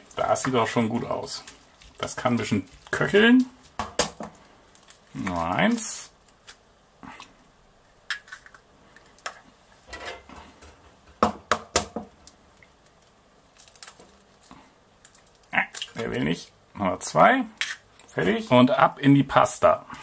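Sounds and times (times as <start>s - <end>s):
dishes and utensils clattering: 9.9s - 10.8s.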